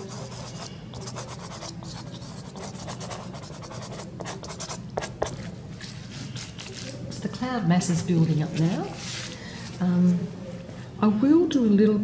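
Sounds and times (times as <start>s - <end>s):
pastel scratching on paper: 0.0s - 5.5s.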